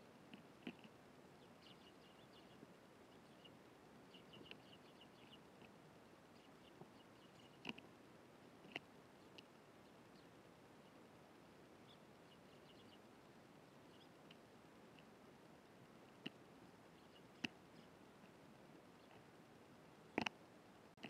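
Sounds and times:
sparrows chirping: 0.7s - 7.8s, 11.8s - 14.4s, 16.8s - 18.0s.

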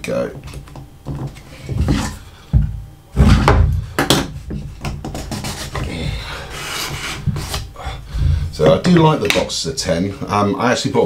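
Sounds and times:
wood knocking on wood: 0.3s - 6.0s
wooden lid sliding: 1.7s - 2.2s, 5.1s - 7.7s.

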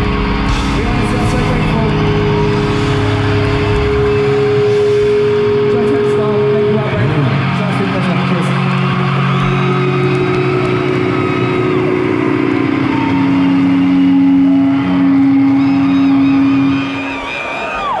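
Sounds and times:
crowd voices: 0.0s - 18.0s
distorted electric guitars: 0.0s - 18.0s.

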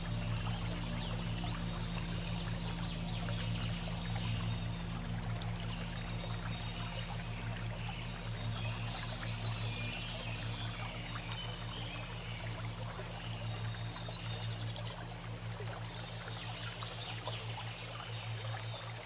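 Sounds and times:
birds chirping: 0.0s - 14.8s
low steady hum: 0.0s - 19.0s
running water: 0.0s - 19.0s.

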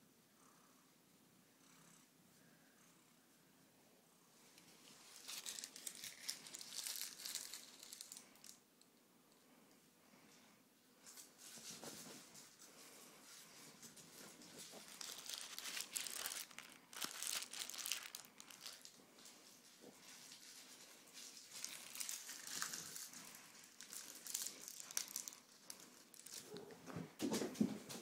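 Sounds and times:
crinkly material rustling: 4.6s - 8.6s, 11.0s - 27.6s.

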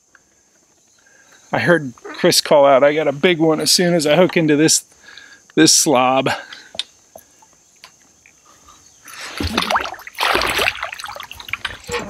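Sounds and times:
water splashing and dripping: 9.1s - 12.0s.

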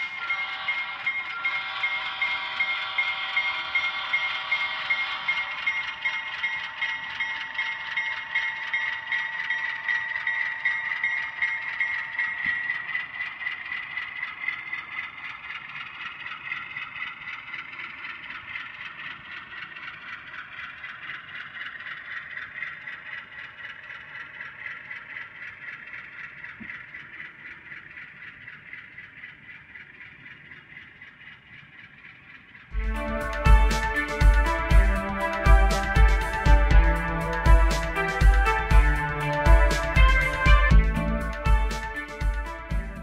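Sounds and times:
steady tone: 0.0s - 14.7s, 32.7s - 43.0s
model train wheels rattling: 0.0s - 43.0s.

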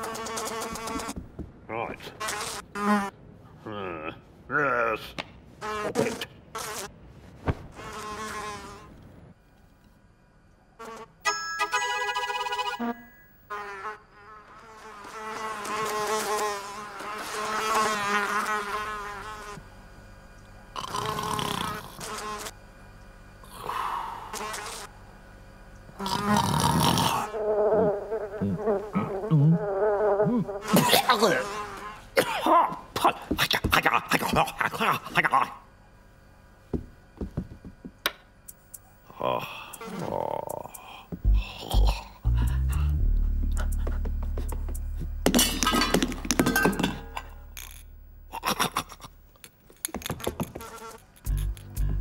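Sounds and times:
cartoon housefly buzzing: 0.0s - 1.2s, 2.2s - 3.1s, 7.7s - 8.9s, 10.8s - 19.6s, 20.8s - 22.6s, 24.2s - 24.9s, 26.0s - 32.1s, 50.1s - 52.0s
low held tone: 11.3s - 13.5s
loud rasping breath: 39.1s - 44.0s
bottles and tools clattering: 45.3s - 47.8s.

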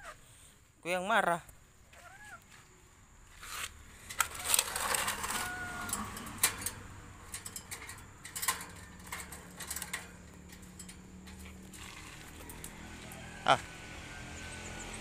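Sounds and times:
rustling: 3.3s - 6.8s
bird claws clicking on cage bars: 4.1s - 12.8s.

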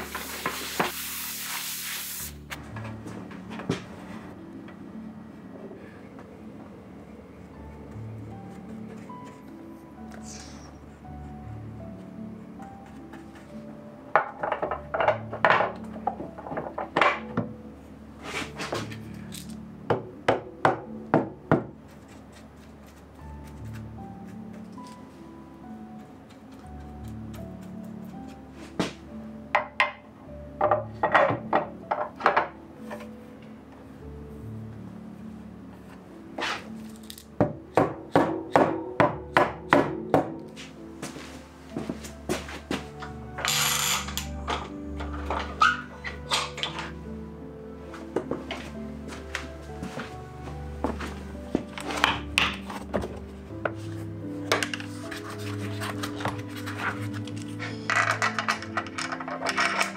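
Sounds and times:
soft background music: 0.0s - 59.9s
tools clicking and knocking: 43.4s - 45.6s, 57.8s - 59.9s.

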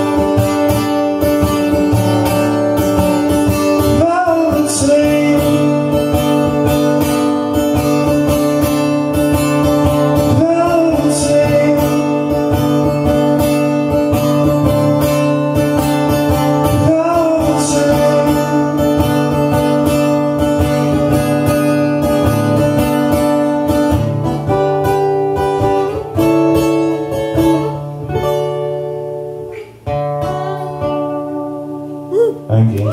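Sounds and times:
acoustic guitar strumming: 0.0s - 32.9s
man singing: 3.4s - 6.8s, 9.9s - 13.0s, 16.4s - 20.0s.

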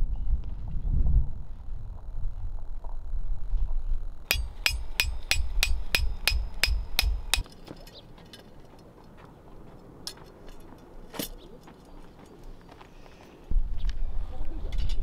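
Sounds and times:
hammer clanging on metal stake: 4.3s - 8.4s.

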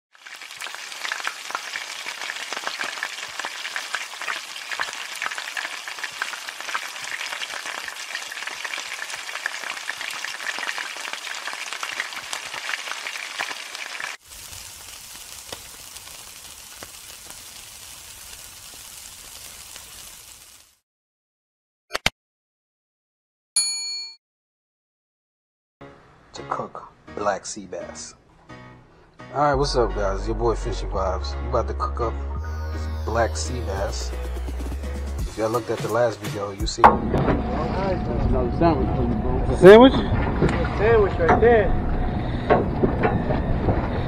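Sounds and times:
food sizzling in hot oil: 0.1s - 20.8s
meat skewers grilling: 0.2s - 20.8s.

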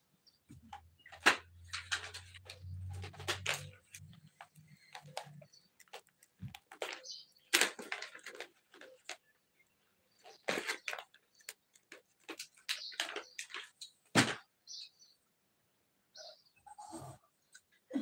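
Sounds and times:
short scraping noises: 16.7s - 17.3s.

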